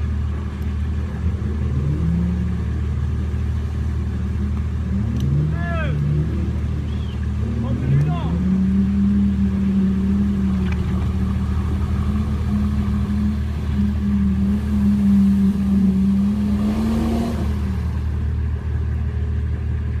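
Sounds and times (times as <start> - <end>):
diesel engine droning: 0.0 - 20.0.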